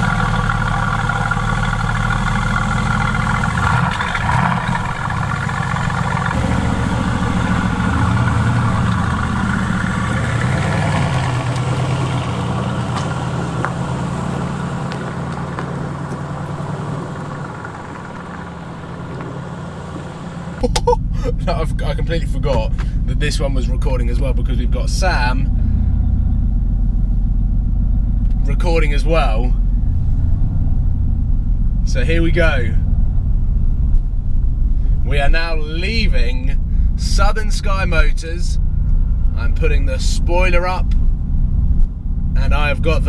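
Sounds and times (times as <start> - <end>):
car engine idling: 0.0 - 43.0.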